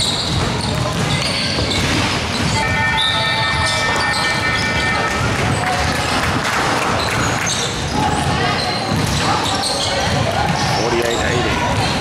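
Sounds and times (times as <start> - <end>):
hubbub of crowd in hall: 0.0 - 12.0
scoreboard buzzer tone: 2.6 - 5.6.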